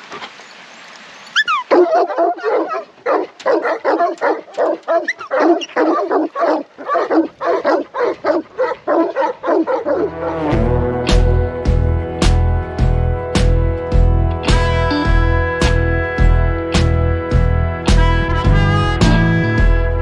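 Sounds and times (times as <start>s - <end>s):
dog barking rapidly: 1.4s - 10.2s
background music: 9.9s - 20.0s.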